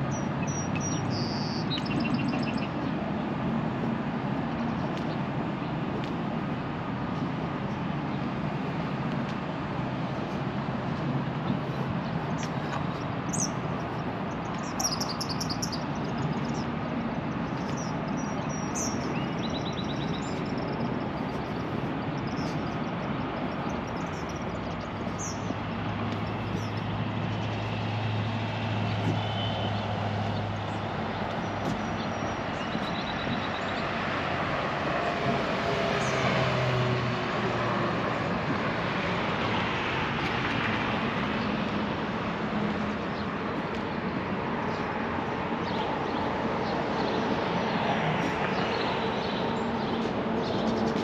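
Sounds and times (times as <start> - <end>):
small birds chirping: 0.0 - 3.1, 11.3 - 34.0, 42.8 - 51.0
road traffic rumble: 0.0 - 51.0
low engine hum: 1.8 - 51.0.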